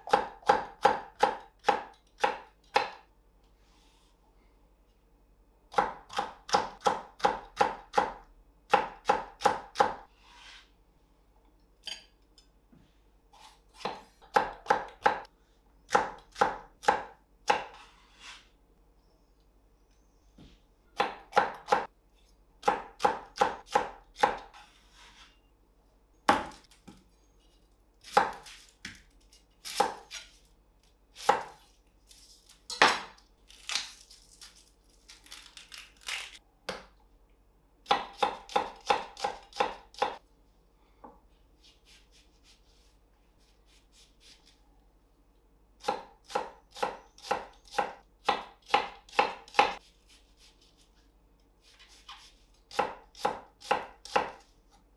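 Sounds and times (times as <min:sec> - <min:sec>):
knife chopping on wooden board: 0:13.4 - 0:15.3, 0:15.9 - 0:17.9, 0:26.3 - 0:27.0, 0:37.9 - 0:40.2, 0:45.8 - 0:49.8, 0:51.9 - 0:54.4.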